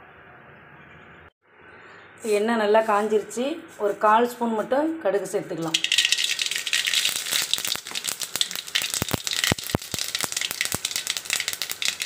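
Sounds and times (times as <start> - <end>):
seeds sizzling and popping in oil: 5.6 - 12.0.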